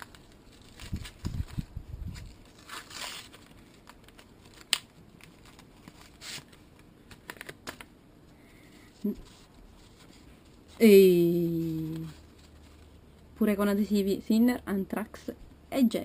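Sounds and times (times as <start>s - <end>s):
paper tearing and crumpling: 0.0s - 6.6s.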